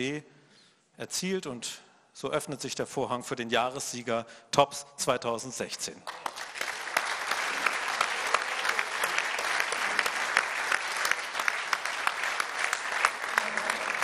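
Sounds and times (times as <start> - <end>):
audience applauding: 6.1 - 14.0.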